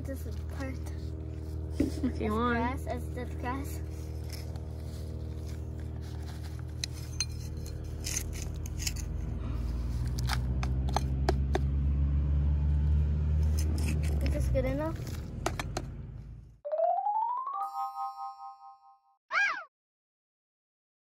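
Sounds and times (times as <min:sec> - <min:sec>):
low machine hum: 0:00.0 - 0:11.4
metal trowel scraping dirt: 0:01.3 - 0:11.2, 0:13.4 - 0:15.3.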